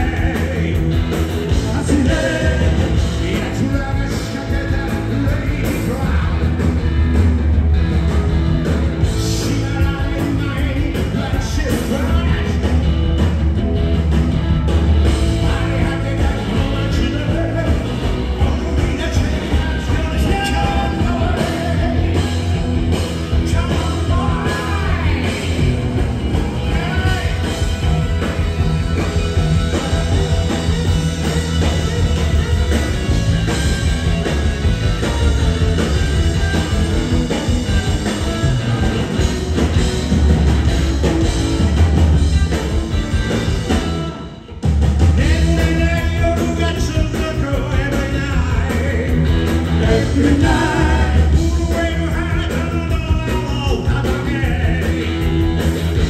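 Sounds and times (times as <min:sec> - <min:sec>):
person singing: 0:00.0 - 0:06.6, 0:15.1 - 0:28.4, 0:45.2 - 0:55.4
live rock band playing: 0:00.0 - 0:56.0.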